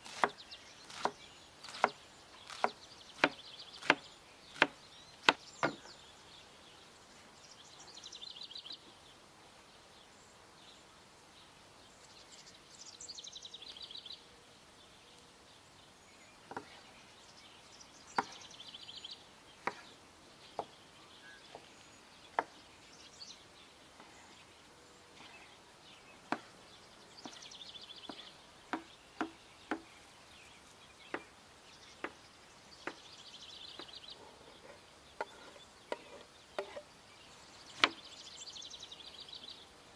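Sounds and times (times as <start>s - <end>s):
knife chopping on wooden board: 0.0s - 4.0s.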